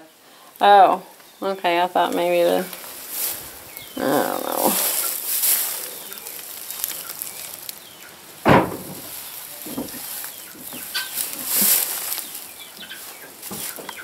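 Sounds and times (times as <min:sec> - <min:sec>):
straw bedding rustling: 0:00.6 - 0:14.0
chickens clucking faintly: 0:03.3 - 0:14.0
sharp thump: 0:08.4 - 0:10.0.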